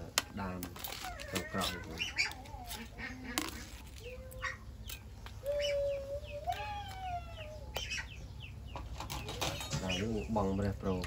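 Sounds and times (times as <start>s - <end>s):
small chirps and clicks: 3.5s - 8.0s.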